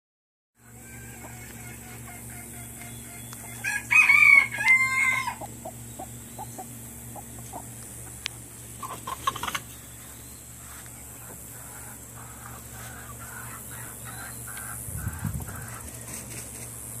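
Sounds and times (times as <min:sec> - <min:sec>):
hens clucking: 0:00.6 - 0:16.8
steady low hum: 0:00.6 - 0:17.0
rooster crowing: 0:03.5 - 0:05.5.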